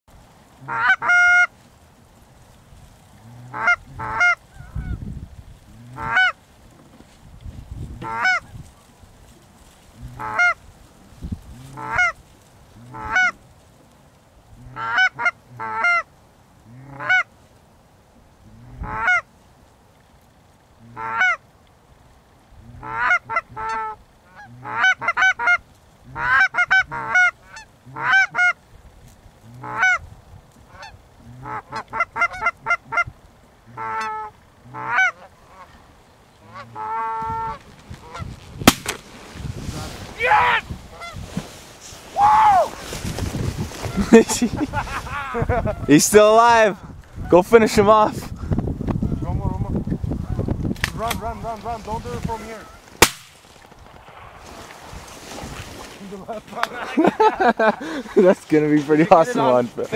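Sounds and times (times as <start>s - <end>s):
goose honks and clucks: 0.6s - 1.5s, 3.2s - 5.0s, 5.8s - 6.4s, 8.0s - 8.5s, 10.0s - 10.6s, 11.5s - 12.2s, 12.8s - 13.4s, 14.6s - 16.1s, 16.7s - 17.3s, 18.4s - 19.3s, 20.8s - 21.4s, 22.6s - 28.6s, 29.4s - 30.0s, 30.7s - 33.1s, 33.7s - 35.8s, 36.4s - 38.8s.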